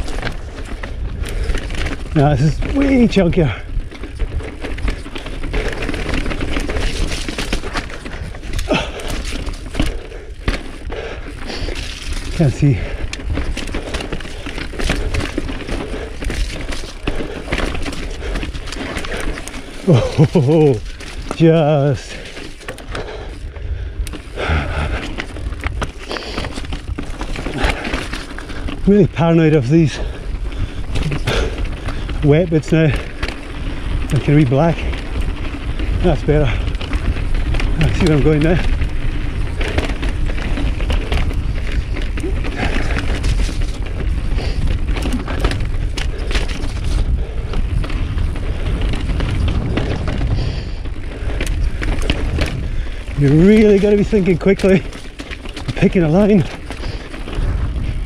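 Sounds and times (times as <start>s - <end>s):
bike knocking and rattling: 0.0s - 58.0s
bike tyres rumbling over rock: 0.0s - 58.0s.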